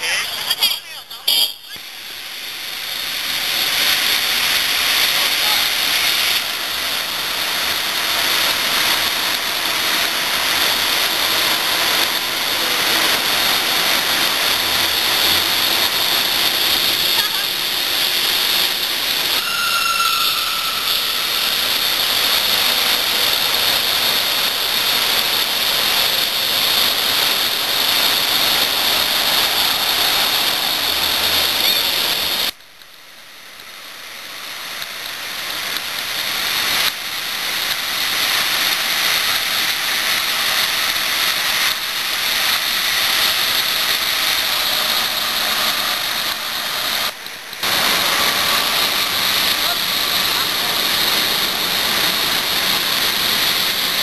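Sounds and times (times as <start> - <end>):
bicycle riding rushing noise: 0.0 - 54.0
short high tone: 19.4 - 21.8.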